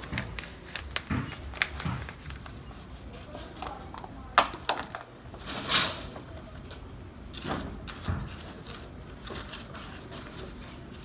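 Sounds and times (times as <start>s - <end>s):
plastic cup crackling and clicking: 0.0s - 2.5s, 3.6s - 5.1s.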